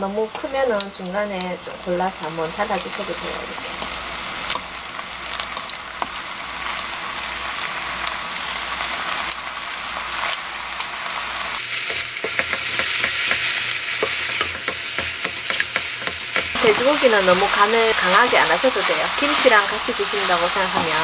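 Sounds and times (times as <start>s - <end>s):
food sizzling in a frying pan: 0.0s - 21.0s
chopsticks clicking and scraping pan: 0.3s - 1.8s, 2.6s - 4.7s, 5.4s - 6.2s, 10.2s - 11.0s, 11.6s - 21.0s.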